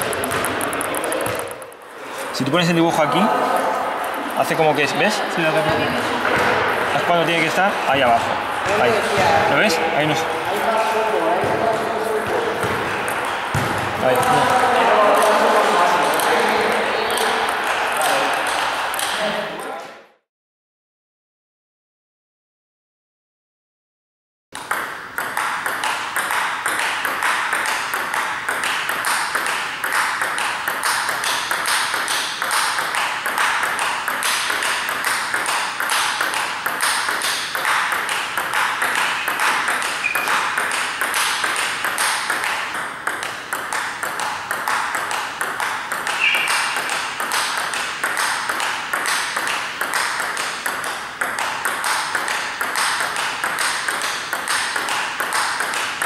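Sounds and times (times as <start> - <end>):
table tennis ball clicking: 0.0 - 1.8, 24.6 - 56.0.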